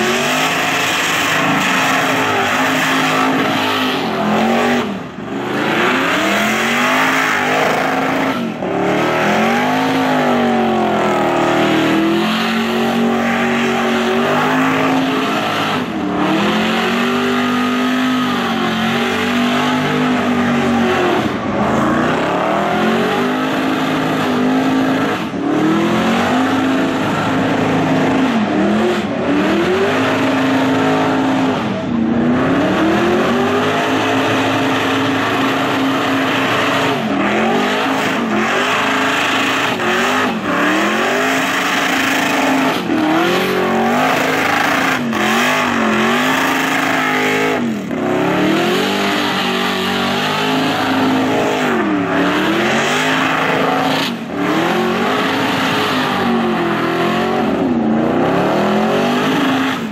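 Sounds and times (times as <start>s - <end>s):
car engine revving hard: 0.0s - 59.9s.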